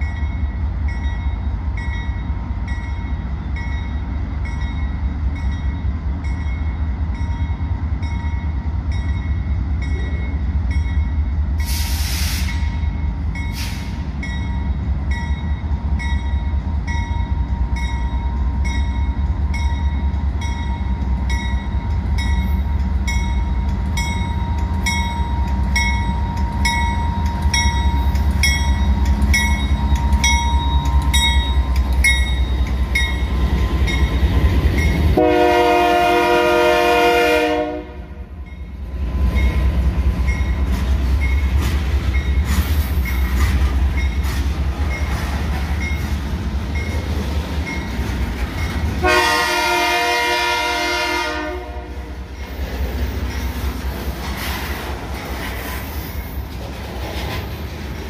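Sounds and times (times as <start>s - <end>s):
locomotive bell ringing: 0.0s - 11.4s, 12.5s - 36.1s, 38.4s - 49.2s, 52.2s - 53.9s
locomotive engine and rail rumble: 0.0s - 58.0s
short air hisses: 11.6s - 12.7s, 13.5s - 14.1s.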